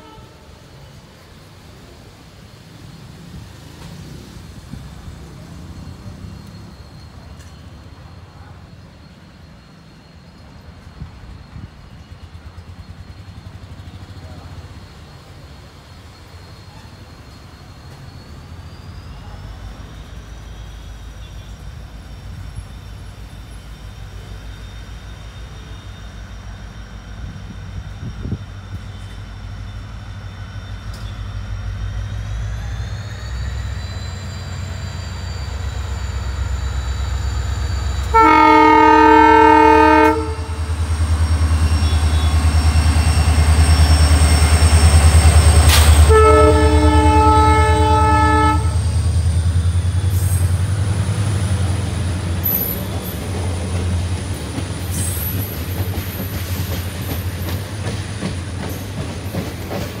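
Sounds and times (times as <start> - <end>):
train air horn blasts: 0.0 - 0.7, 38.0 - 40.8, 45.6 - 49.0
diesel locomotive passing: 0.0 - 60.0
train wheels clicking over rail joints: 40.2 - 46.2, 48.9 - 60.0.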